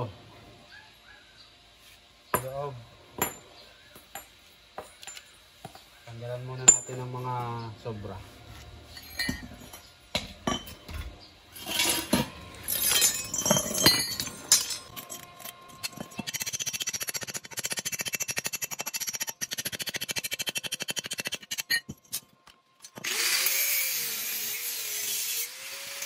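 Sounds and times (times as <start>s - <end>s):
steel tools clinking: 8.9s - 17.0s, 21.5s - 23.0s
rapid metal strokes on steel: 14.5s - 21.9s.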